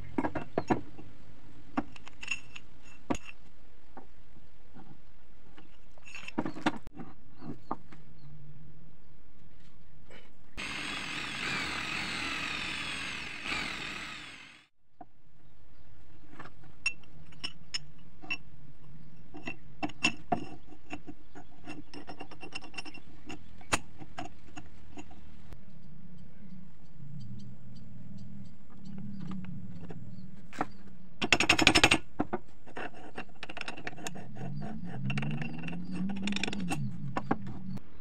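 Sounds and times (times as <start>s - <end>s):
drill bit whining through steel: 10.6s - 14.7s.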